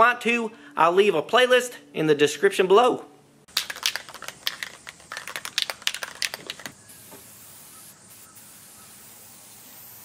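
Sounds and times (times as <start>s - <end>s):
spray can rattling: 3.5s - 7.5s
spray can hissing: 3.5s - 10.0s.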